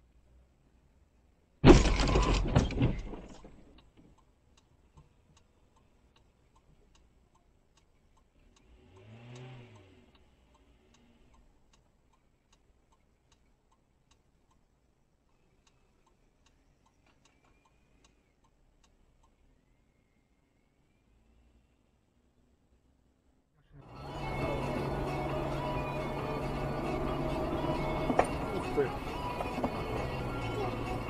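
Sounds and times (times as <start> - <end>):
loud rattling bang: 1.6 - 3.6
car indicator relay ticking: 3.7 - 19.4.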